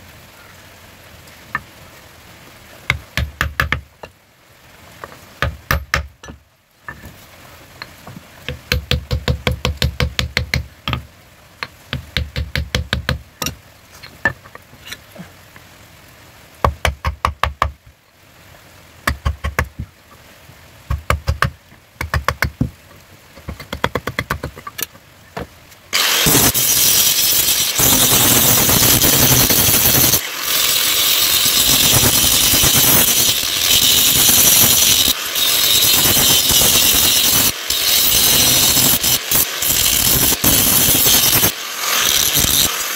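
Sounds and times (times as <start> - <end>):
angle grinder whirring: 26.0 - 42.9.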